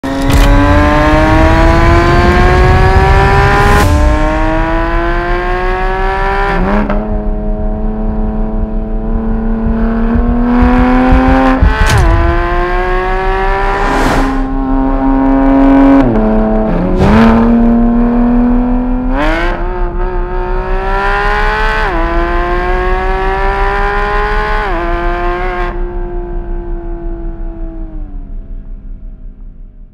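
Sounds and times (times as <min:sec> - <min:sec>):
sharp crack at gear changes: 0:00.0 - 0:04.6, 0:09.6 - 0:12.5
sports car engine accelerating: 0:00.0 - 0:29.2.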